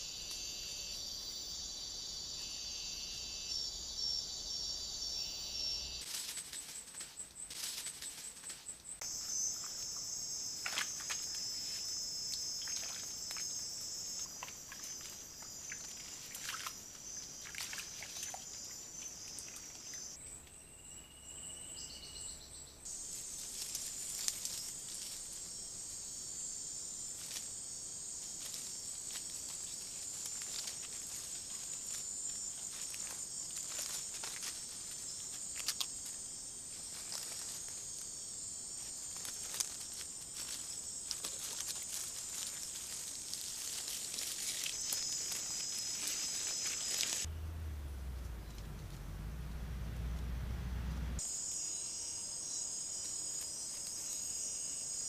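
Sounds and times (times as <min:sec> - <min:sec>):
insect chorus buzzing: 0:00.0 - 0:47.3, 0:51.2 - 0:55.0
rustles and crackles: 0:06.0 - 0:13.6, 0:22.9 - 0:25.7, 0:27.0 - 0:47.3.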